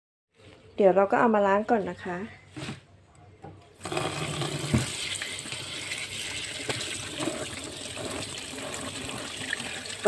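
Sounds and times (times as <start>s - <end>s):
tap water running into basin: 3.8s - 10.0s.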